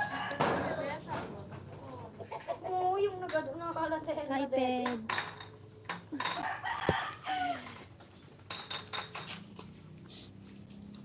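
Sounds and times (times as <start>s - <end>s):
chicken clucking: 1.8s - 2.9s.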